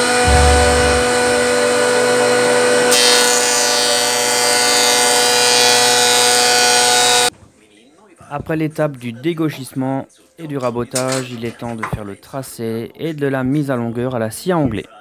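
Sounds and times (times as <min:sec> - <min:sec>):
planer motor and cutter-head whine: 0:01.0 - 0:07.3.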